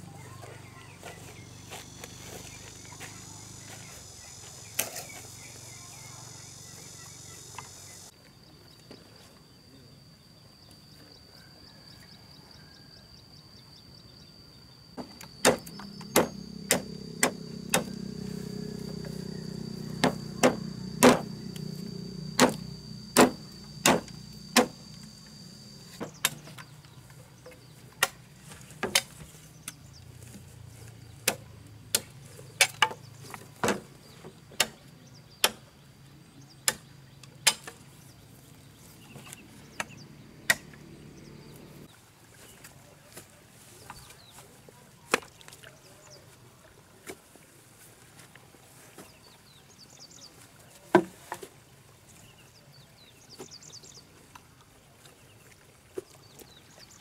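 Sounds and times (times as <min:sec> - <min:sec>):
low steady hum: 0:13.2 - 0:32.5
machete chopping bamboo: 0:15.4 - 0:17.9, 0:20.0 - 0:21.3, 0:22.4 - 0:22.6, 0:23.2 - 0:24.8.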